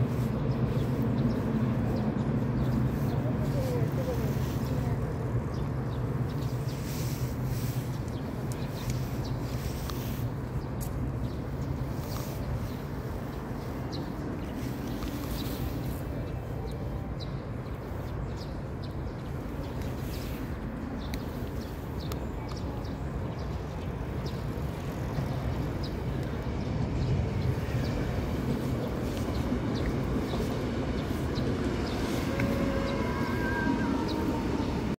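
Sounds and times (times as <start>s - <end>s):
electric train passing: 23.2s - 34.9s.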